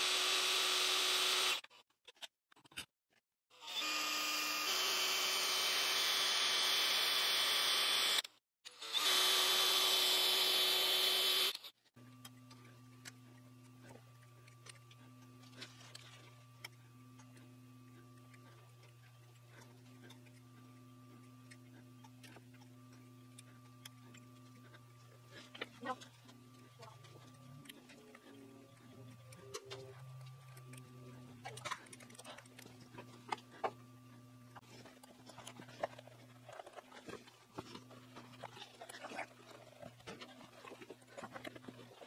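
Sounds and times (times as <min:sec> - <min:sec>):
power drill running: 0:00.0 - 0:01.7, 0:03.6 - 0:11.8.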